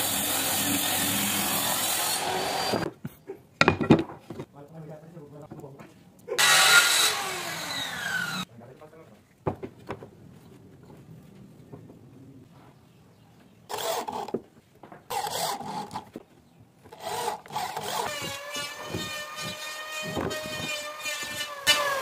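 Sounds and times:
electric drill driving screws: 0.0 - 2.9, 6.4 - 8.4, 13.7 - 14.3, 15.1 - 16.0, 16.9 - 22.0
power tool motor whining: 6.4 - 8.4, 16.9 - 22.0.

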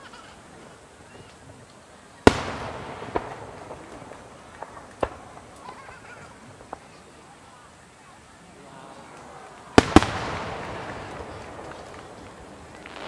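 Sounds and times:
faint firework pops: 1.1 - 7.1, 9.1 - 13.0
firework shells bursting: 2.2 - 7.1, 9.1 - 13.0
booming echo: 2.3 - 5.6.

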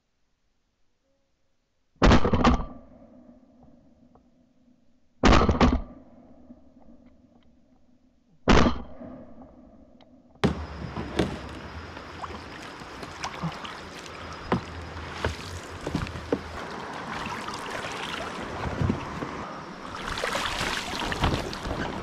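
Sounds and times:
paddle knocks: 10.4 - 22.0
water lapping and splashing: 10.5 - 22.0.

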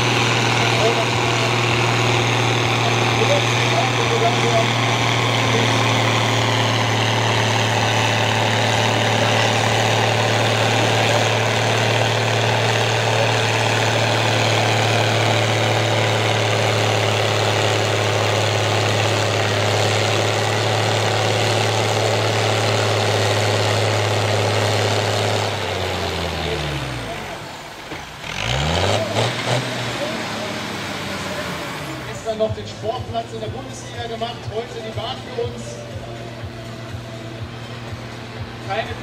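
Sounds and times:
tractor diesel engine idling: 0.0 - 39.0.

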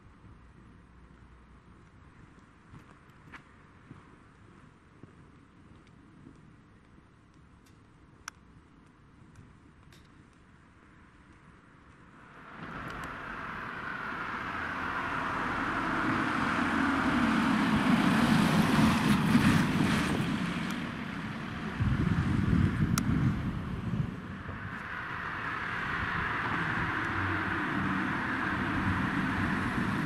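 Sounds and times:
van engine and tyre noise: 0.0 - 30.0
cars driving past: 12.1 - 30.0.

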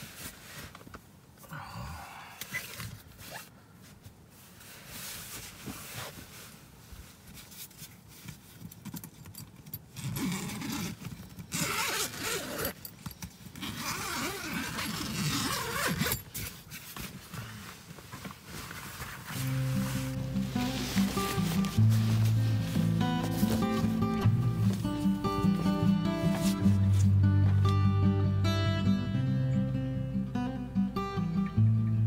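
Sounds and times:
tent zipper unzipping: 9.9 - 12.8, 13.6 - 17.7, 18.6 - 27.2.

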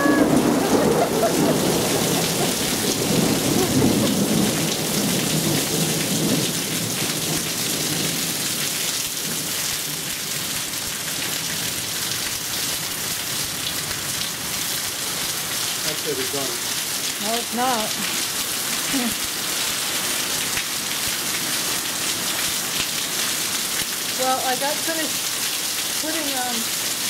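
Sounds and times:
rolling thunder rumble: 0.0 - 8.2
pouring rain hiss: 0.0 - 27.0.

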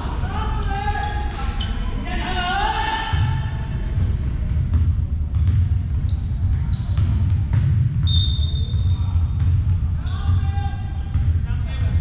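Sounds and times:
sneaker squeaks: 0.5 - 11.4
basketball bouncing: 3.1 - 12.0.

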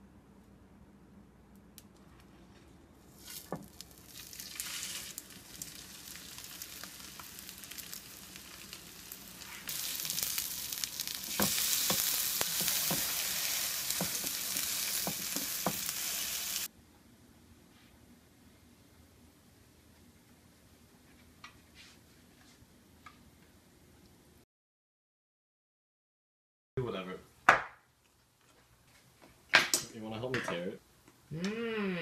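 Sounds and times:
cutlets sizzling on a griddle: 3.1 - 16.7.

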